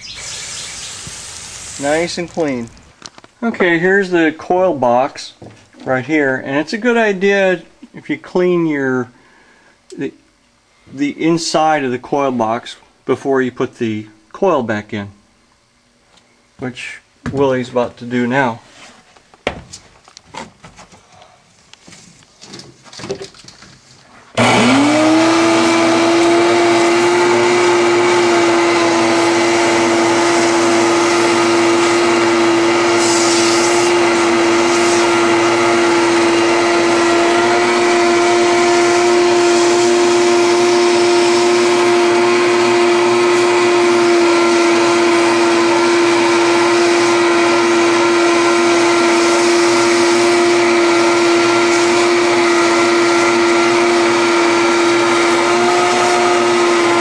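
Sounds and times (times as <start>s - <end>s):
vacuum cleaner running: 0.0s - 2.7s, 24.4s - 57.0s.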